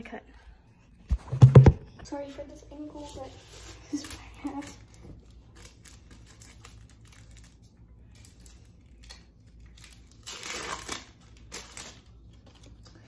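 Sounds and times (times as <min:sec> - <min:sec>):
paper wrapper crinkling: 0:03.3 - 0:13.0
wrapper rustling as pulled apart: 0:03.5 - 0:13.0.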